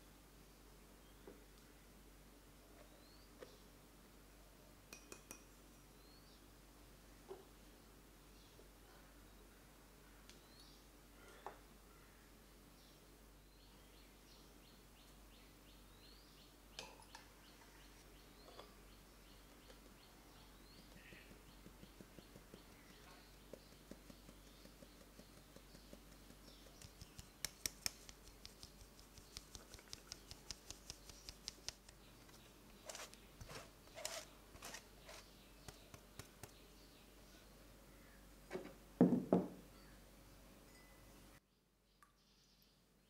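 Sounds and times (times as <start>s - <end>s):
brushing strokes on sieve: 32.8s - 35.3s.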